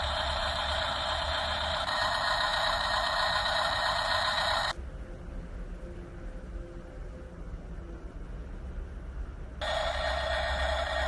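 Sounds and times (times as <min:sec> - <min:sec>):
toy truck engine sound effect: 0:00.0 - 0:04.8, 0:09.6 - 0:11.0.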